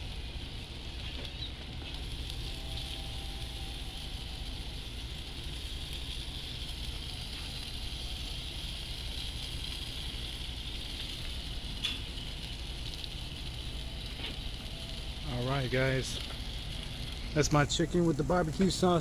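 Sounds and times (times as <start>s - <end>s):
meat sizzling on a grill: 0.0s - 19.0s.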